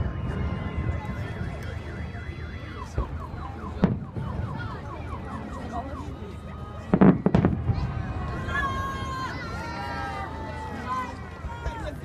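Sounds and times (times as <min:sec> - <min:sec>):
car alarm warbling and whooping: 0:01.4 - 0:06.2
firework bang: 0:03.8 - 0:04.7, 0:06.9 - 0:08.2.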